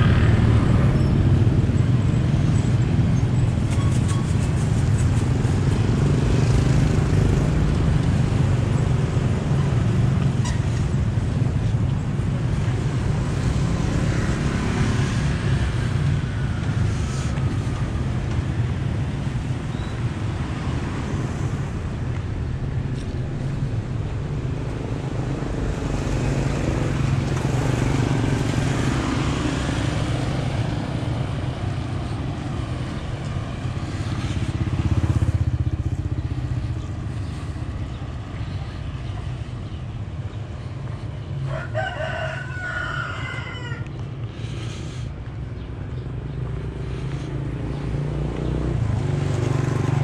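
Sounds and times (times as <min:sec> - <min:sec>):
low rumble: 0:00.0 - 0:02.3
rooster crowing: 0:41.4 - 0:44.0.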